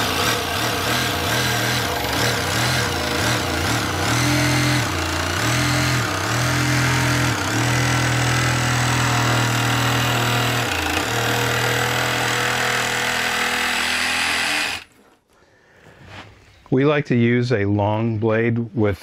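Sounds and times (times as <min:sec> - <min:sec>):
reciprocating saw cutting drywall: 0:00.0 - 0:15.1.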